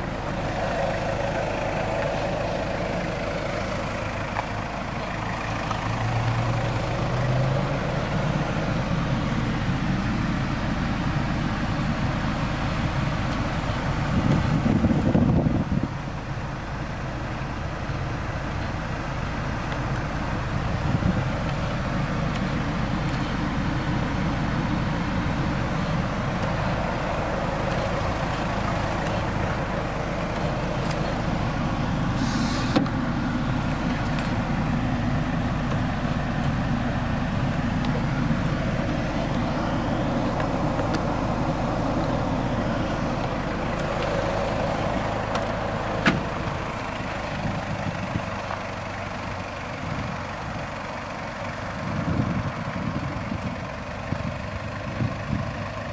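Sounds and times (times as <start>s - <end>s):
vehicle rumble: 0.0s - 55.9s
brief hiss: 32.2s - 32.9s.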